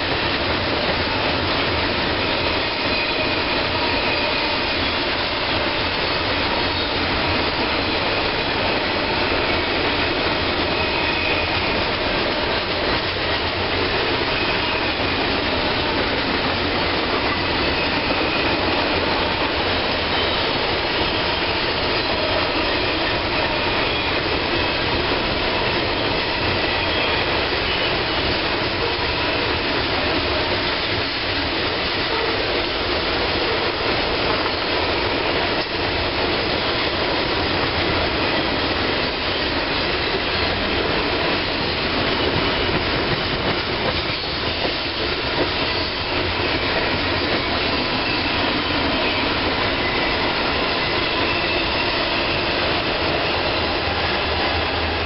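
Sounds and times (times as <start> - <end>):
steel wheels rolling on rail: 0.0 - 55.0.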